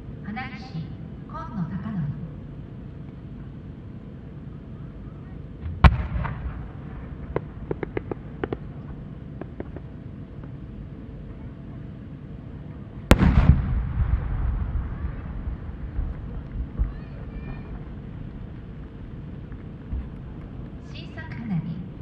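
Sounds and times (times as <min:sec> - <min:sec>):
firework launch report: 0:02.7 - 0:21.2
firework boom with echo: 0:05.6 - 0:08.6, 0:13.1 - 0:17.0
small pops of rising firework: 0:05.6 - 0:08.7, 0:13.1 - 0:15.2.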